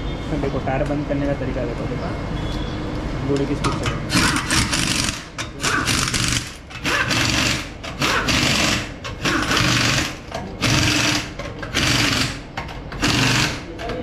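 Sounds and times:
pneumatic impact wrench rattling: 3.9s - 14.0s.

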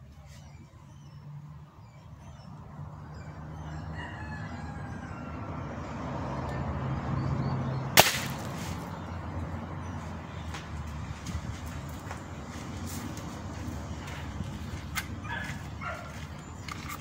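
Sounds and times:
rooster crowing: 3.2s - 6.1s
air rifle shot: 8.0s - 8.8s.

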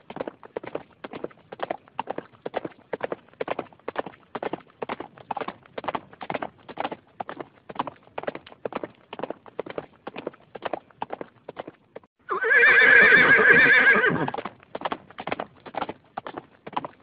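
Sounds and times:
horse hoofbeats: 0.0s - 17.0s
horse whinny: 12.2s - 14.4s.

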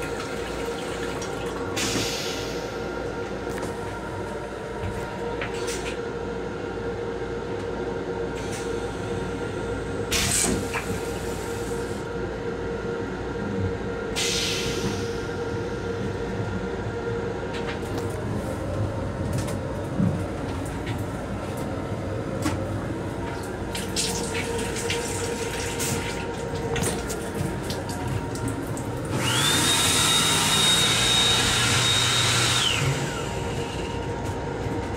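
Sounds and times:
hand dryer whining: 24.7s - 34.3s
electric train running: 28.2s - 34.9s.

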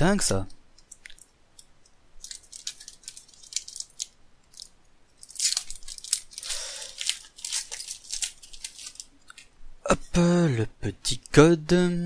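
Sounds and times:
foil wrapper crinkling: 0.9s - 9.5s
foil ripping: 2.2s - 9.1s.

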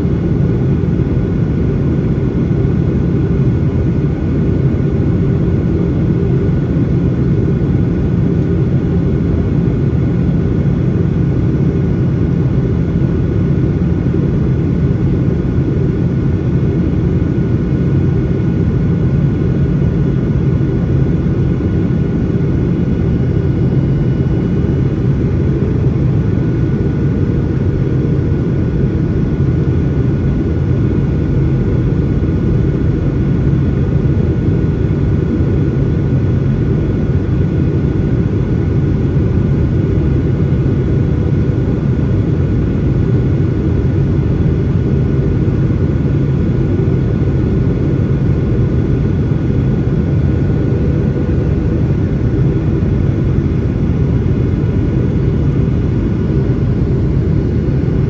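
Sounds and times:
airplane cabin rumble: 0.0s - 58.0s
faint steady whine: 0.0s - 58.0s.

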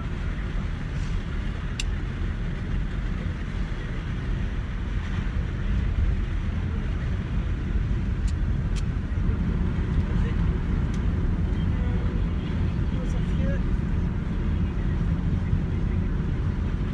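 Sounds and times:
van road and engine rumble: 0.0s - 16.9s.

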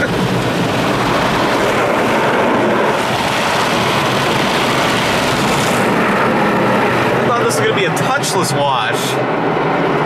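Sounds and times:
water beating on car roof: 0.0s - 7.2s.

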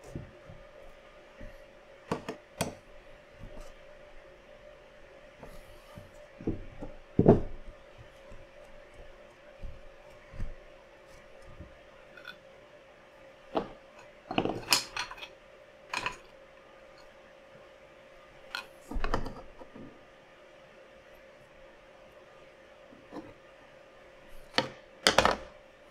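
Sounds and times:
faint steady hum: 0.0s - 25.9s.

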